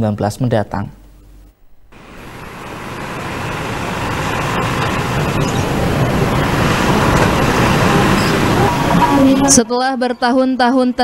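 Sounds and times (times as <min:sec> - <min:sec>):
road traffic with motorbikes: 0:02.0 - 0:09.6.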